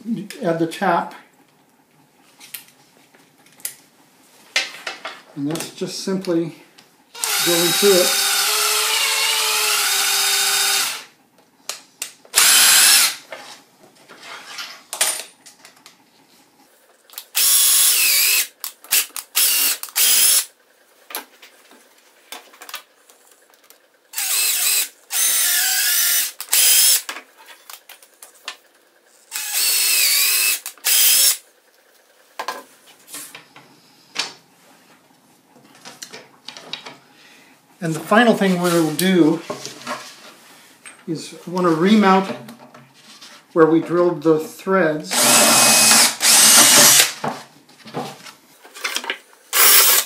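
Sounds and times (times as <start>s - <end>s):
cordless drill drilling plastic: 7.2s - 11.1s, 12.4s - 13.2s, 17.4s - 20.5s, 24.2s - 27.0s, 29.3s - 31.4s, 45.1s - 47.2s, 49.5s - 50.0s.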